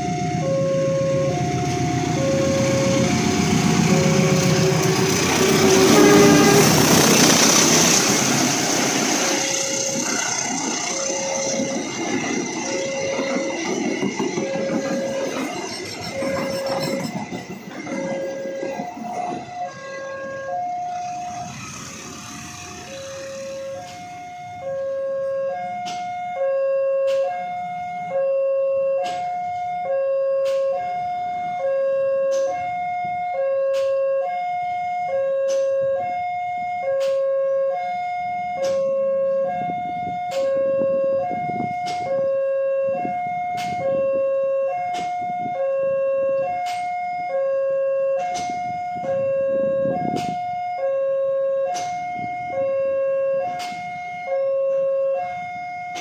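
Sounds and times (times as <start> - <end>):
level crossing two-tone alarm: 0.0 - 8.1, 8.9 - 56.0.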